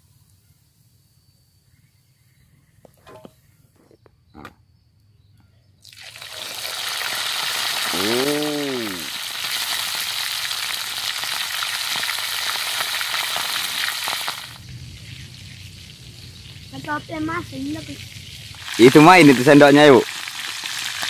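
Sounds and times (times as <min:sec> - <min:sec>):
oil sizzling in a wok: 0:05.8 - 0:21.0
short low voice: 0:07.9 - 0:09.1.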